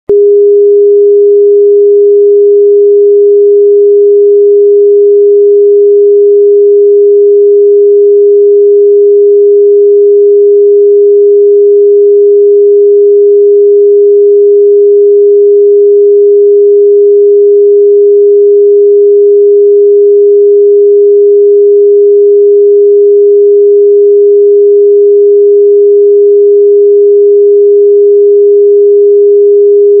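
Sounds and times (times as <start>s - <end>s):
sine-wave test tone: 0.0s - 30.0s.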